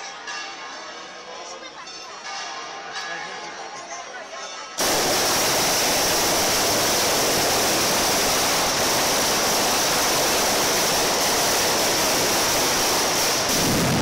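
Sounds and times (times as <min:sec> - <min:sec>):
firecracker barrage: 0:04.8 - 0:14.0.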